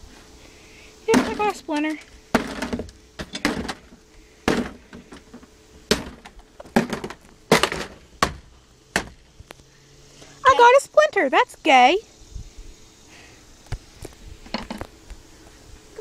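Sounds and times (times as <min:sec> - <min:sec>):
wood panels cracking: 0:05.9 - 0:09.3.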